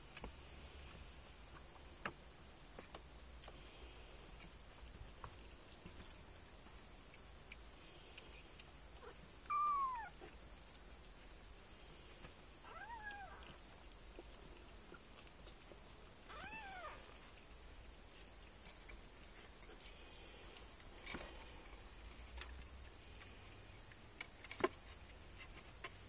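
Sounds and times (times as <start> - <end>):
kitten mewing: 9.0 - 10.3, 12.6 - 13.6, 16.3 - 17.2.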